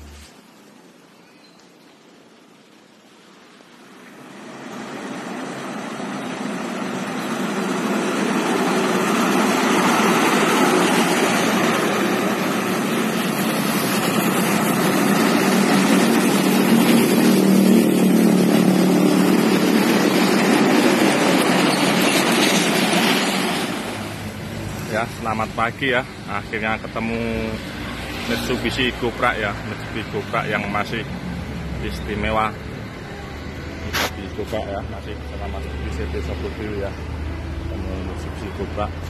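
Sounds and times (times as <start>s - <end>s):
truck engine: 0.0s - 0.4s, 3.8s - 39.0s
road noise: 0.0s - 39.0s.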